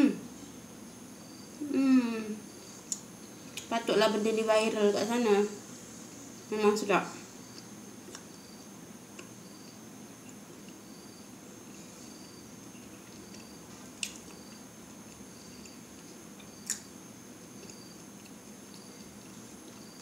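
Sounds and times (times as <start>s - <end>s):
person chewing bread: 12.8s - 20.0s.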